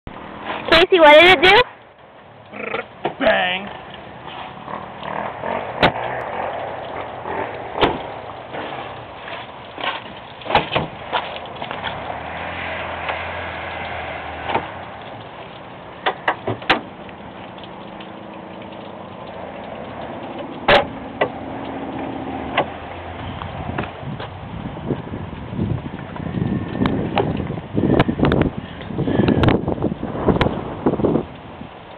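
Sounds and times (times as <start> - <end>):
car hood clicks and clunks: 7.8 - 8.0, 9.8 - 11.3, 16.0 - 16.9, 20.6 - 21.4.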